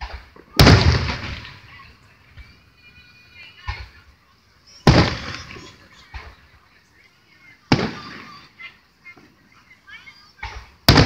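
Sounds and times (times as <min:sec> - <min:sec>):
distant firework booms: 0:00.0 - 0:01.7, 0:04.8 - 0:06.4, 0:07.7 - 0:08.4, 0:10.4 - 0:11.0
faint firework thuds: 0:00.0 - 0:02.7, 0:04.8 - 0:06.7, 0:07.7 - 0:09.4, 0:10.3 - 0:11.0.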